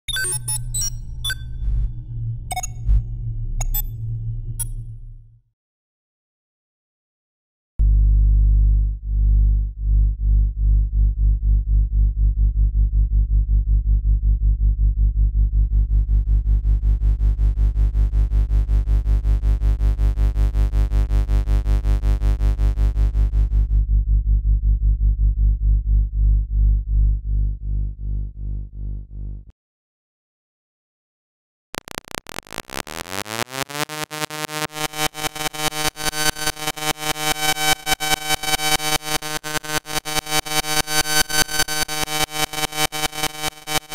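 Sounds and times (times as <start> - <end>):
buzzy overtones: 0.3 - 5.4, 31.8 - 43.9
electrical hum drone: 0.3 - 5.4, 7.8 - 29.5, 31.8 - 43.9.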